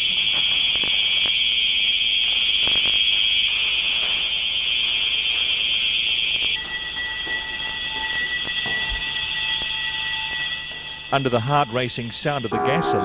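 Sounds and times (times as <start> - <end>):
building alarm ringing: 0.0 - 13.0.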